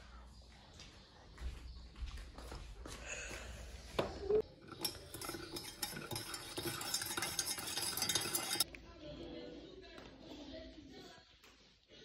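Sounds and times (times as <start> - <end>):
spoon stirring in a mug: 4.4 - 8.7.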